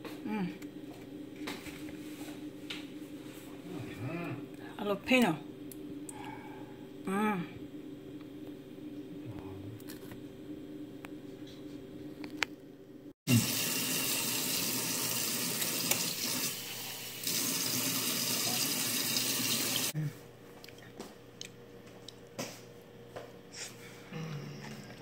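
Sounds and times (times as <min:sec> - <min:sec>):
kitchen tap running: 0:13.3 - 0:19.9.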